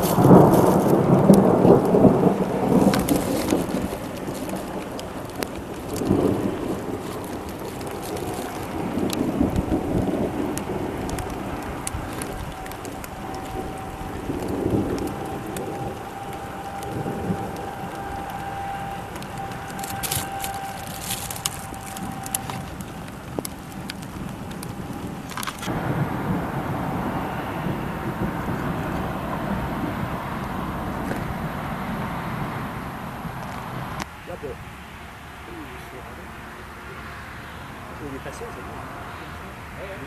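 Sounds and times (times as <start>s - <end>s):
raindrops ticking: 0.0s - 26.6s
storm rain: 0.0s - 40.0s.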